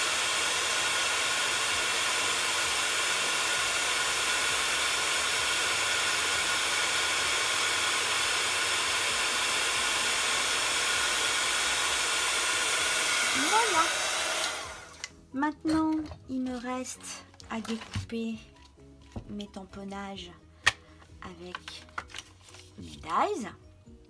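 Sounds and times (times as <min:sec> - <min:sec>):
heat tool blowing air: 0:00.0 - 0:15.1.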